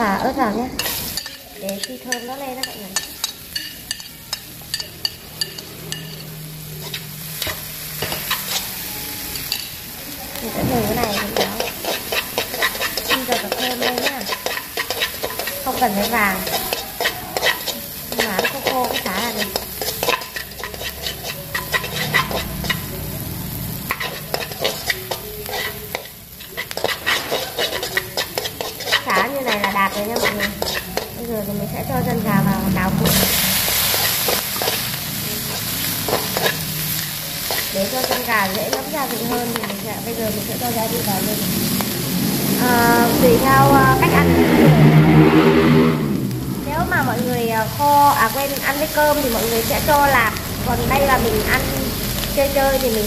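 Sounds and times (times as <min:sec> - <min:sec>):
food sizzling in oil: 0:00.0 - 0:53.0
metal tongs tapping and scraping wok: 0:00.4 - 0:23.0, 0:23.8 - 0:41.0.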